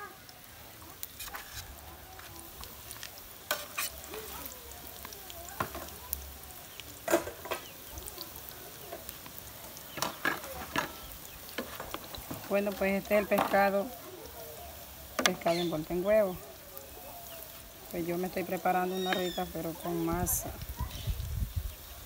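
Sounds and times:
sauce sizzling: 0.0 - 22.0
metal spatula scraping a pot: 1.0 - 2.3, 3.5 - 4.3.

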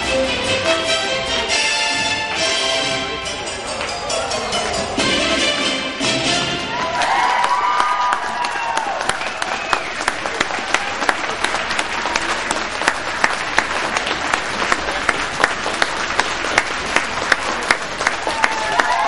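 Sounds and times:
audience applauding: 6.6 - 19.0.

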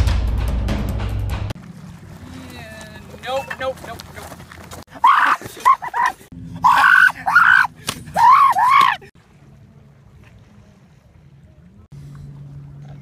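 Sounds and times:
boys yelling battle cries: 4.9 - 9.1.

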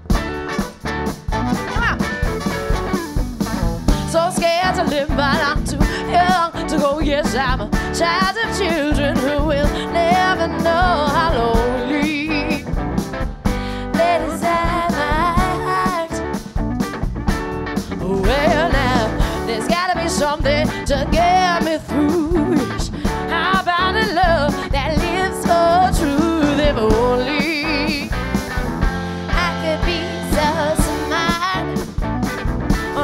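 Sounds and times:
live rock-soul band playing: 0.0 - 33.0
woman singing: 4.0 - 12.7, 13.6 - 16.3, 17.9 - 28.2, 29.3 - 31.8.

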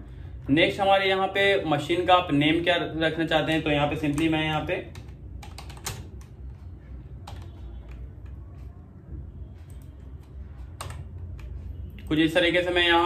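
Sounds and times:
low steady hum: 0.0 - 13.0
keyboard keystrokes: 3.9 - 6.6, 7.2 - 8.8, 9.6 - 11.7.

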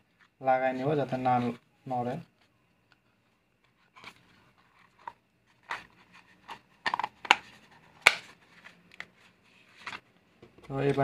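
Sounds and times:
rustling and scraping of parts: 2.2 - 11.0.

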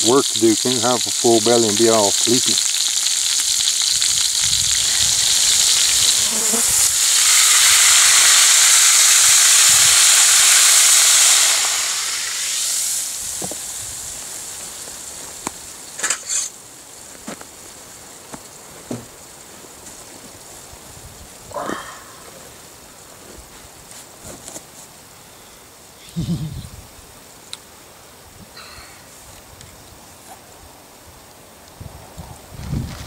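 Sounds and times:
bacon sizzling in a skillet: 0.0 - 18.6.

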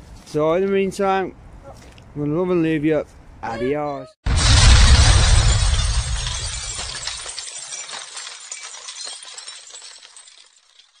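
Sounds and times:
heavy boom with low rumble: 4.3 - 6.6
shattering glass debris: 4.3 - 11.0.

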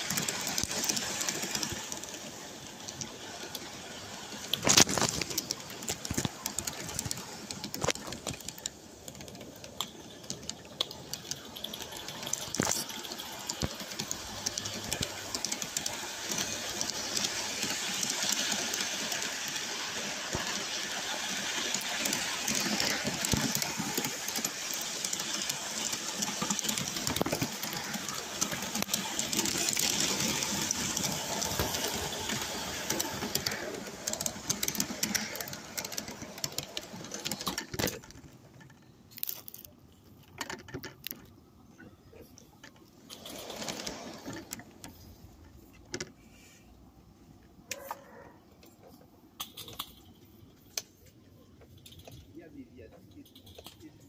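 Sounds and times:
steam train hissing: 0.0 - 4.7, 8.4 - 37.4
wheels clicking over rails: 0.0 - 54.0.

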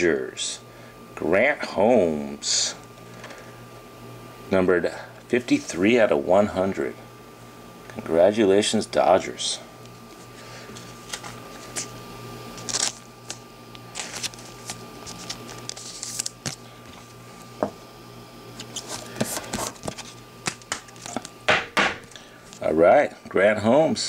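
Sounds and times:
faint steady hum: 0.0 - 24.0
card sliding into plastic sleeve: 10.7 - 11.9, 12.6 - 17.1.

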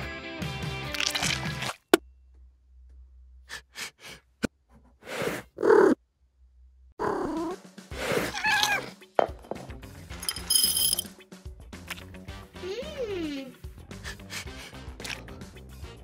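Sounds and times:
cat meowing: 8.2 - 8.9.

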